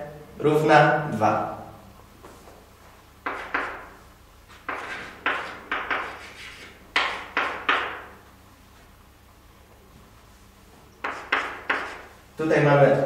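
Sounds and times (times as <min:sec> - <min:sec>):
chalk tapping on blackboard: 0:03.2 - 0:08.2, 0:11.0 - 0:12.1.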